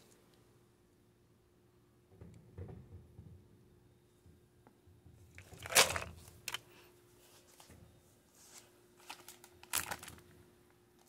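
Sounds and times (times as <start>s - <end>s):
plastic packaging crinkling: 5.4s - 6.6s, 8.5s - 10.3s.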